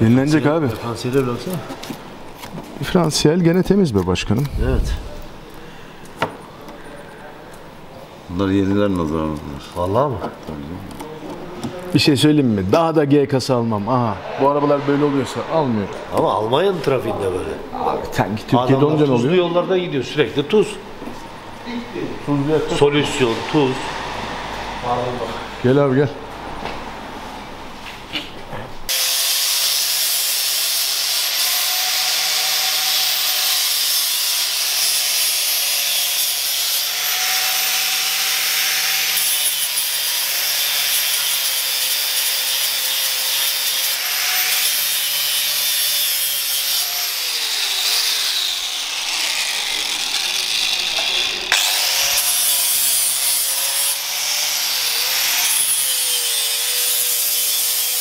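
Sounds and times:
power sander on metal: 28.9s - 58.0s.

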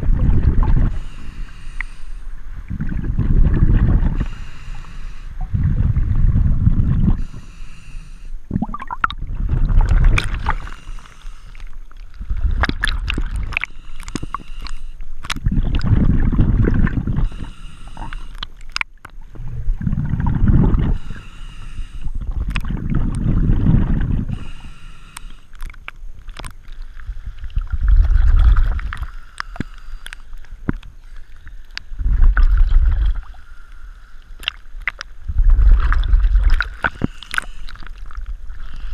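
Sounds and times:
exhaled air bubbling: 0.0s - 38.9s
regulator inhale hiss: 0.8s - 2.5s, 4.1s - 5.5s, 7.1s - 8.5s, 10.4s - 12.4s, 13.6s - 15.2s, 17.1s - 18.6s, 20.8s - 22.4s, 24.2s - 25.7s, 28.8s - 32.0s, 33.2s - 34.4s, 36.8s - 38.0s
small clicks and bubble pops: 8.5s - 9.2s, 12.5s - 16.0s, 18.0s - 19.2s, 22.4s - 23.2s, 25.2s - 26.8s, 34.4s - 38.2s
water sloshing: 8.5s - 24.7s, 34.4s - 38.9s.

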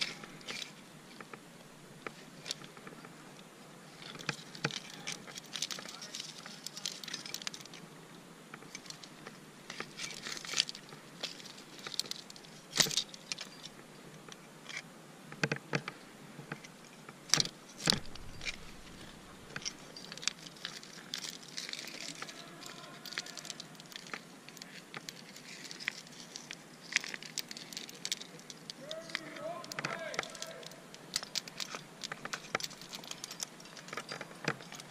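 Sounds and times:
metal climbing gear jangling: 0.0s - 1.4s, 2.0s - 7.9s, 8.5s - 34.9s
rustles and knocks: 8.5s - 34.9s.

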